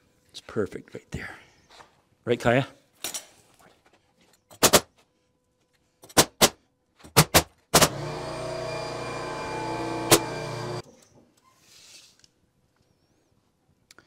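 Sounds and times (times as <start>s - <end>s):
nail gun firing: 4.6s - 4.9s, 6.2s - 8.2s, 10.0s - 10.5s
motor humming: 7.8s - 10.8s.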